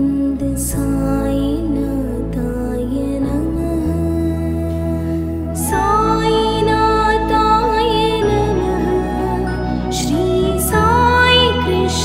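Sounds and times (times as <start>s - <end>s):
low drone: 0.0s - 12.0s
devotional song held note: 4.5s - 12.0s.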